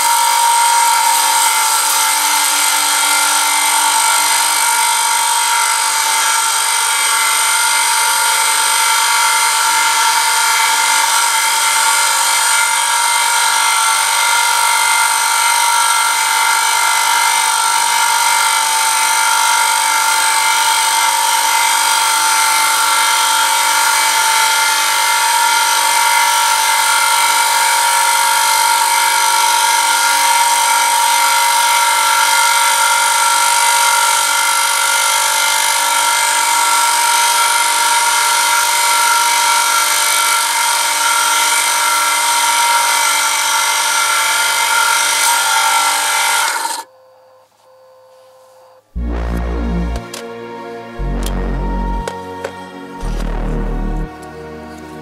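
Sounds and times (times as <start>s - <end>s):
motor high-pitched whine: 0.0s - 27.4s, 49.0s - 54.4s.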